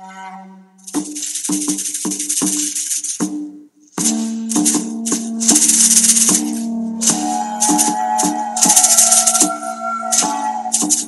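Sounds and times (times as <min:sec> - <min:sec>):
rattling percussion beat: 0:00.8 - 0:11.0
held low tones: 0:03.6 - 0:11.0.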